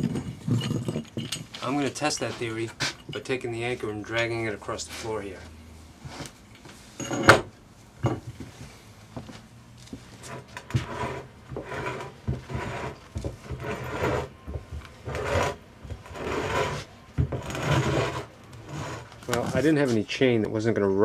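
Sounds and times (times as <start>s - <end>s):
metal anchor scraping across floor: 0.0s - 5.2s, 6.0s - 7.5s, 9.9s - 19.9s.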